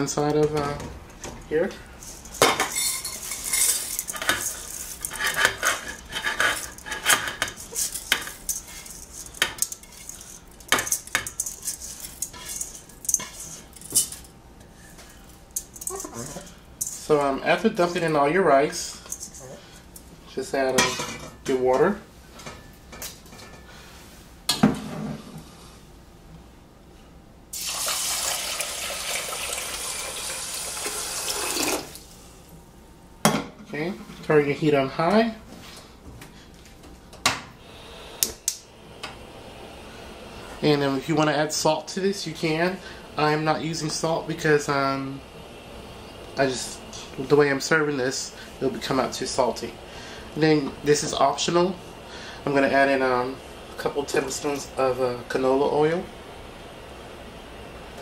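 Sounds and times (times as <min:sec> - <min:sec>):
water pouring into a pot: 0:27.5 - 0:32.1.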